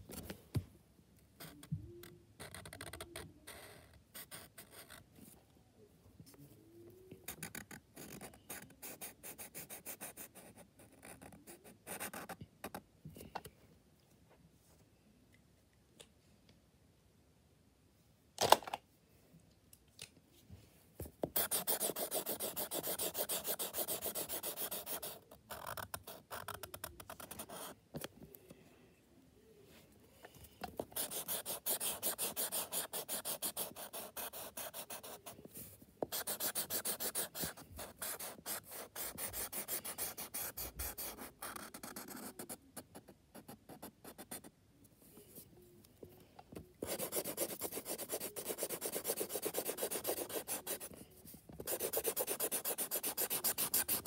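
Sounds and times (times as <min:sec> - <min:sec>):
marker scratching on paper: 0:21.2 - 0:27.8, 0:30.8 - 0:35.4, 0:36.0 - 0:44.5, 0:46.8 - 0:51.0, 0:51.6 - 0:54.0.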